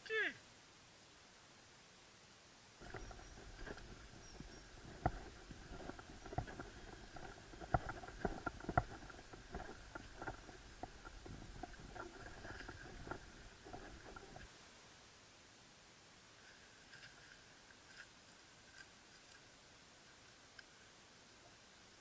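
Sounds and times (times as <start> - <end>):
camera handling knocks and rubbing: 2.8 - 14.5.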